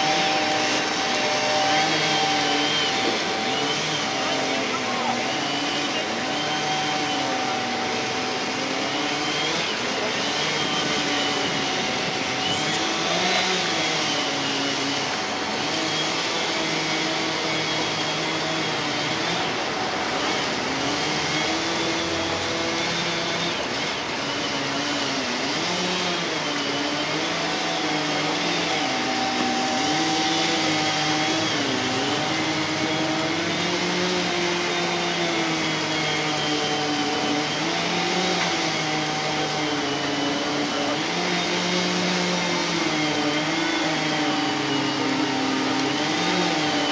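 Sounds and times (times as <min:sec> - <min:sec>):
chainsaws running: 0:00.0 - 0:46.9
excavator engine: 0:00.0 - 0:46.9.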